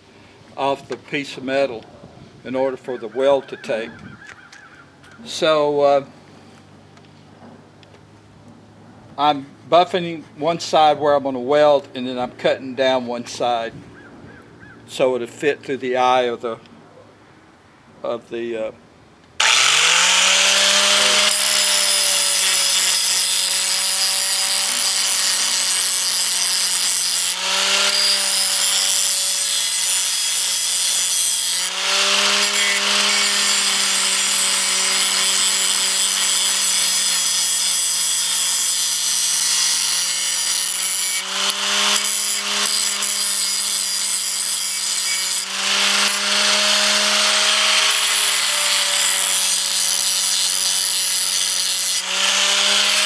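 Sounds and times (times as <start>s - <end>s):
angle grinder grinding steel: 19.4s - 53.0s.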